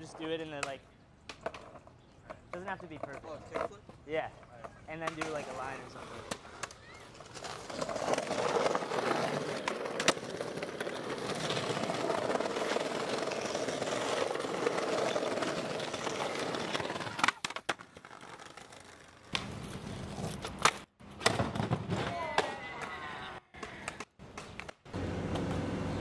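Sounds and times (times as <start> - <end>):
skateboard wheels rolling on bricks: 1.3 - 23.0
skateboard clacking: 6.2 - 19.6.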